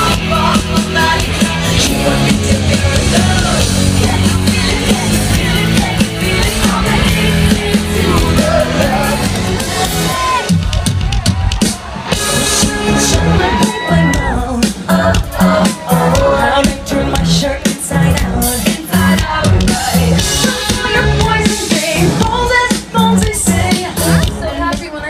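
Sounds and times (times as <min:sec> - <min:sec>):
loud live pop concert music: 0:00.0 - 0:25.0.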